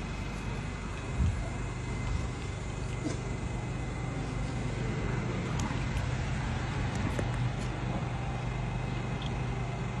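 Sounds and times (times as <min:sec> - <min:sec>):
electric train humming: 0:00.0 - 0:10.0.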